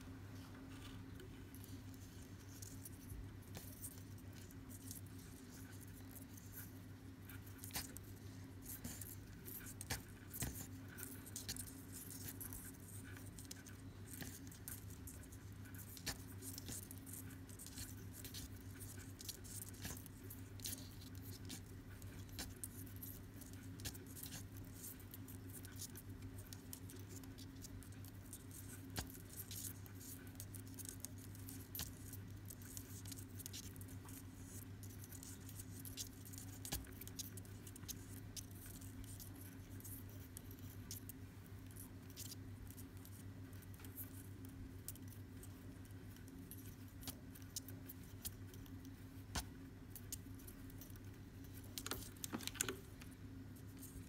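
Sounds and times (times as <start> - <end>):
low electrical hum: 0.0 - 54.0
cord rustling and clicks: 51.8 - 53.2.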